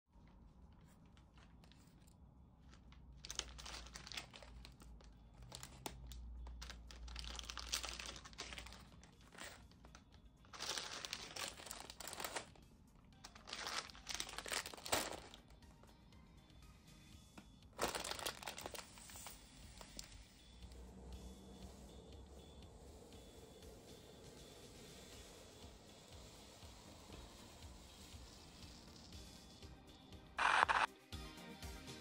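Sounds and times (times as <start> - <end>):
plastic bags crinkling: 1.3 - 12.6, 13.3 - 15.5, 17.8 - 19.2.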